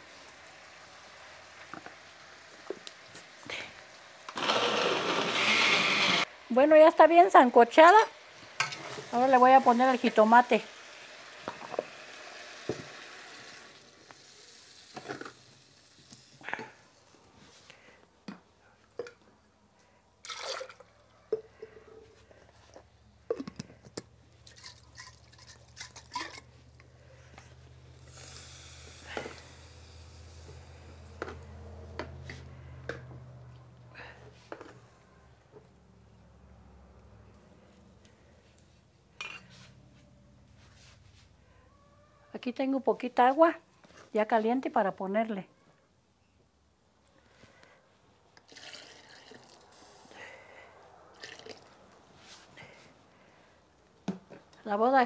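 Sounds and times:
sauce sizzling in hot oil: 0:00.0 - 0:04.4, 0:07.5 - 0:16.4, 0:27.9 - 0:31.2
electric blender running: 0:04.3 - 0:06.3.

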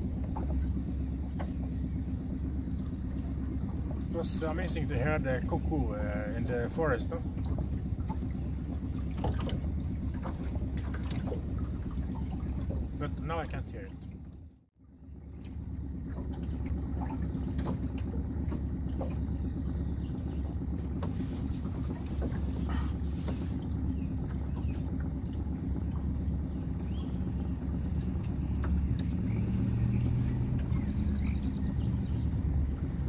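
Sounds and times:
motorboat engine running: 0:00.0 - 0:33.0.

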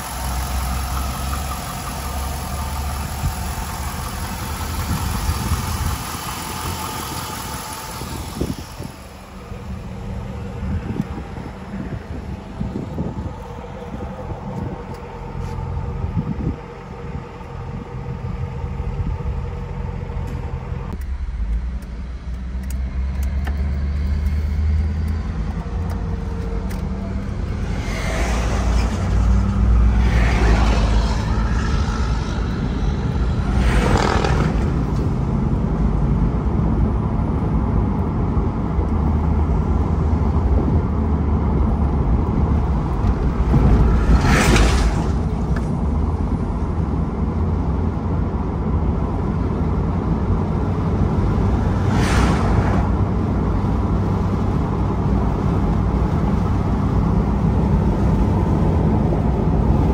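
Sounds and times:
car engine idling: 0:00.0 - 0:43.9
low rumble inside car: 0:00.0 - 0:59.9
road noise: 0:00.0 - 0:59.9
traffic passing: 0:00.0 - 0:59.9.

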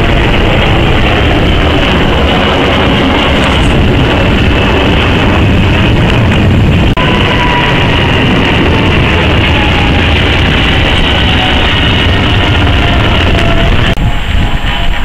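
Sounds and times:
jet airliner roaring overhead: 0:00.0 - 0:15.0.

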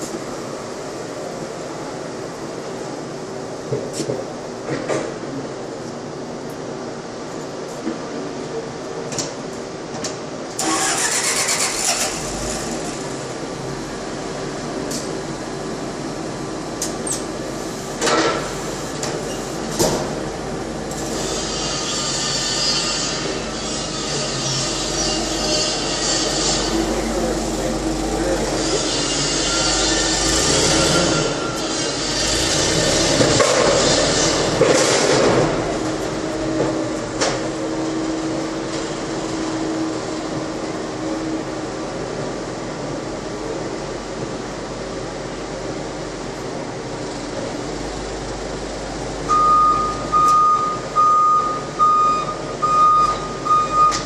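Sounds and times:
constant mechanical noise: 0:00.0 - 0:54.0
forklift engine running: 0:10.5 - 0:54.0.

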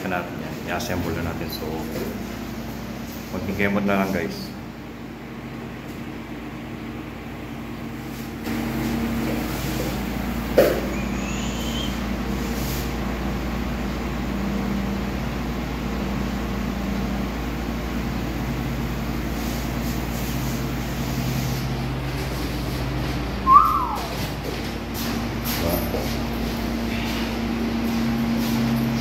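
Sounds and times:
mechanical hum and hiss: 0:00.0 - 0:29.0
short whistle: 0:10.9 - 0:12.0, 0:23.4 - 0:24.2.

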